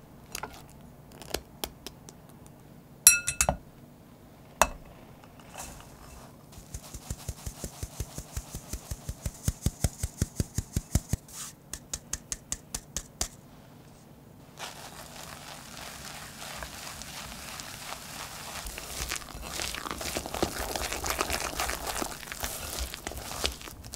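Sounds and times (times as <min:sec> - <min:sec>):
metal sieve tapping: 0:03.1 - 0:03.6, 0:04.6 - 0:06.2
whisk scraping a bowl: 0:05.3 - 0:09.4, 0:14.6 - 0:23.9.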